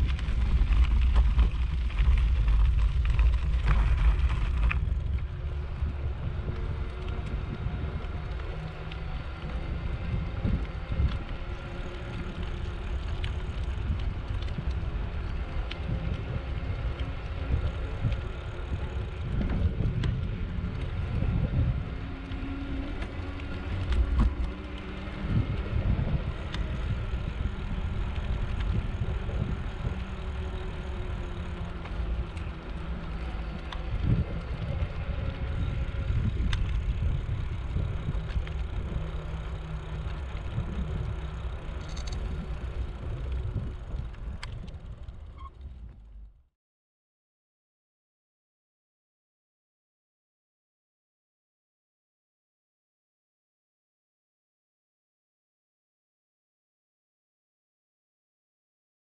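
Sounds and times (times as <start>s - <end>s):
tyres rolling on paved path: 0.0s - 46.3s
wind rumbling on microphone: 0.0s - 46.4s.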